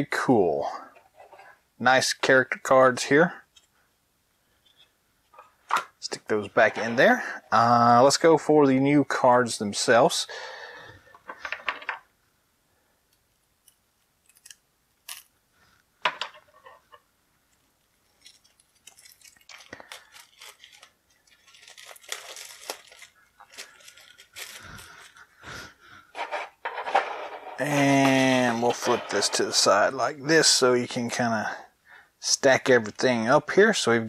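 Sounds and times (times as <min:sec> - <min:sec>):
cards and packaging clicking: 0:13.6 - 0:15.3, 0:18.1 - 0:25.2
wrapping crinkling and tearing: 0:13.6 - 0:15.3, 0:17.5 - 0:25.3.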